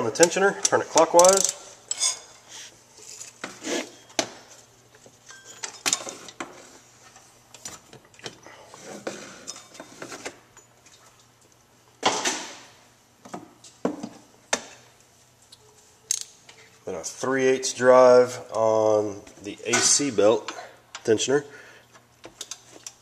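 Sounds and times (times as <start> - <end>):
wrench clinking on metal: 1.1 - 2.4.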